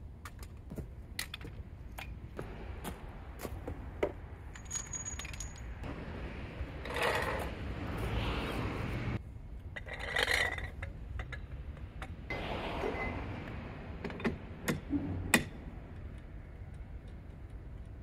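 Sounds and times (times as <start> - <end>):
ringing clink: 4.5 - 5.7
small metal objects clinking: 4.5 - 5.9.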